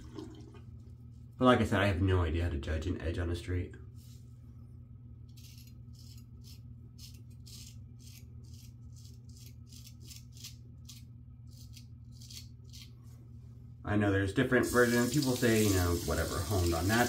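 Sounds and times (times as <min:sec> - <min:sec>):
razor scraping stubble: 0:05.3 - 0:13.0.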